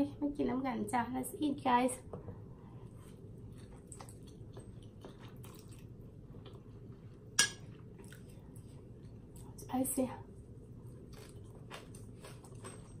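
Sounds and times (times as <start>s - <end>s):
person chewing noodles: 3.1s - 9.6s, 10.8s - 13.0s.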